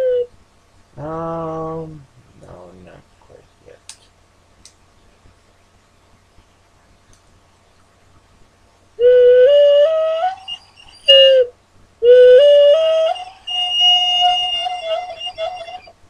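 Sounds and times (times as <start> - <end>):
ocarina playing rising scale: 9.0 - 16.0.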